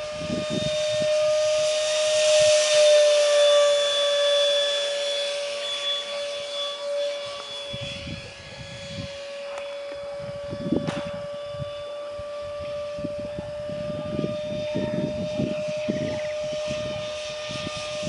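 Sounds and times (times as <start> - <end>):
wind rumble on microphone: 0.0 - 3.6, 7.2 - 18.0
model jet ducted fan whine: 0.0 - 18.0.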